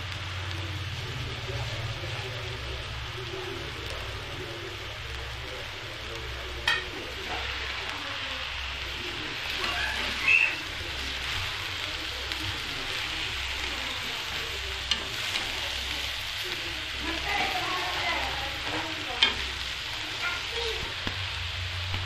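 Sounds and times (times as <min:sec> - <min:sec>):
rice sizzling in hot oil: 0:00.0 - 0:22.0
spatula scraping a pan: 0:09.6 - 0:10.8.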